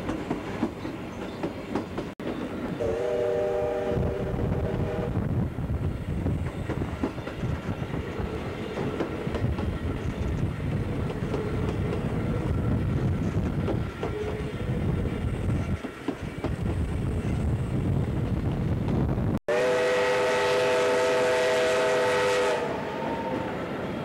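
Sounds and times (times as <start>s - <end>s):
train low rumble: 0.0s - 24.0s
wheels clicking over rail joints: 6.3s - 16.8s.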